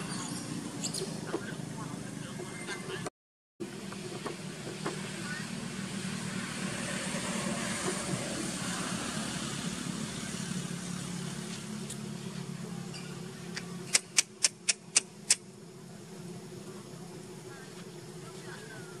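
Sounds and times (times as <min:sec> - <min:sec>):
vehicle engine humming: 0:00.0 - 0:19.0
sharp clicks: 0:13.5 - 0:15.4.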